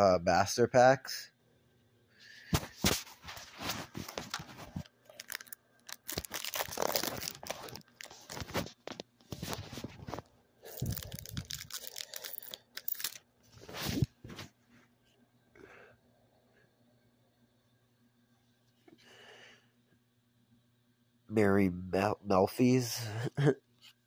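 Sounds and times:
foil wrapper tearing and crinkling: 2.8s - 9.6s, 10.7s - 14.0s.

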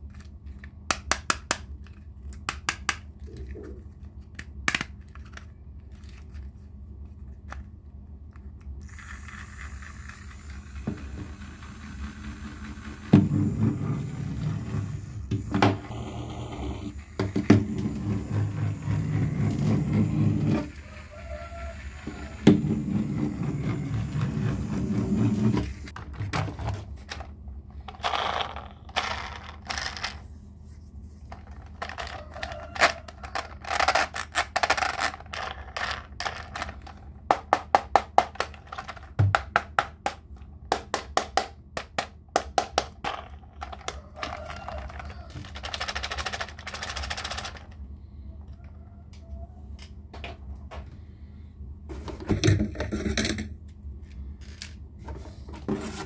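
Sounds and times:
small hard toys clattering: 26.0s - 30.2s, 31.3s - 39.8s, 42.9s - 47.8s.

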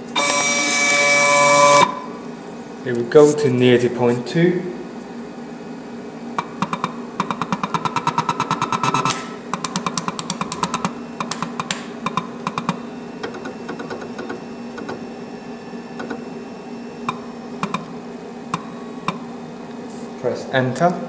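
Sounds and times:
short motor buzz: 0.0s - 2.1s
machine clicks: 6.4s - 15.0s, 16.0s - 16.2s, 17.1s - 17.9s.

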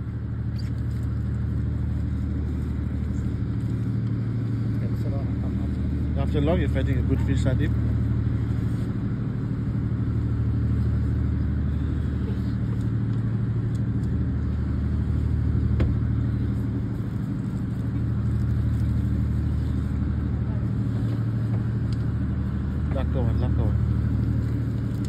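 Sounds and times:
boat engine idling: 0.0s - 25.0s.

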